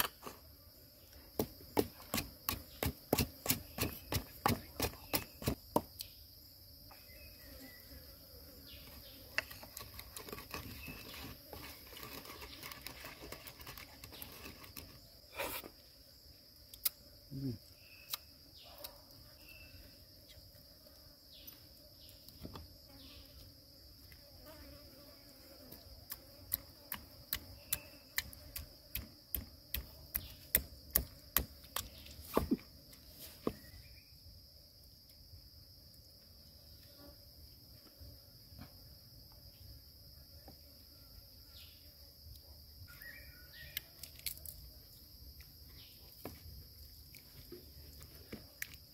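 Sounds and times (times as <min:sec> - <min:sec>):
high insect chirring: 0:00.0 - 0:34.4
knife chopping on a board: 0:01.4 - 0:05.9.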